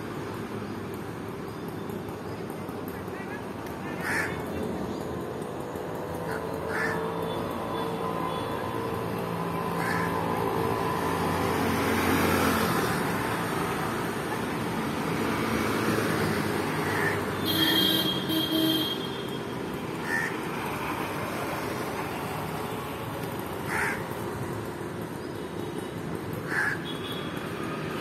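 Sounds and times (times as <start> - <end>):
traffic passing: 0.0 - 28.0
crow cawing: 4.0 - 4.4, 6.2 - 7.1, 9.7 - 10.3, 16.8 - 17.8, 20.0 - 20.4, 23.7 - 24.1, 26.4 - 26.9.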